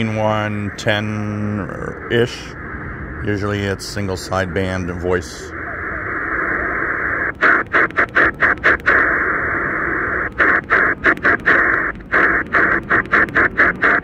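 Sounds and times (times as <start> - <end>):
radio band hiss: 0.0 - 14.0.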